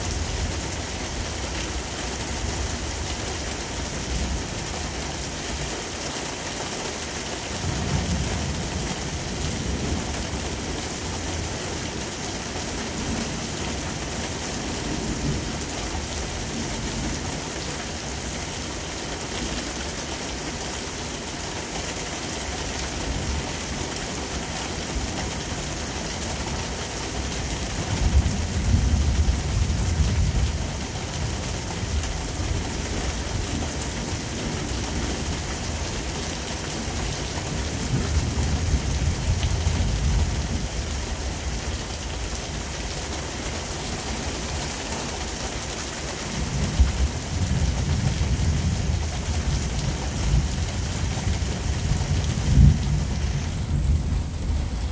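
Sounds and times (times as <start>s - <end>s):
heavy rain falling: 0.0s - 54.9s
low rolls of thunder: 46.5s - 54.9s.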